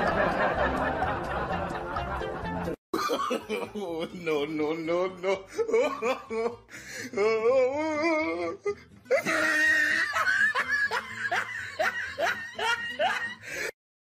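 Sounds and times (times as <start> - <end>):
person laughing: 3.0 - 13.7.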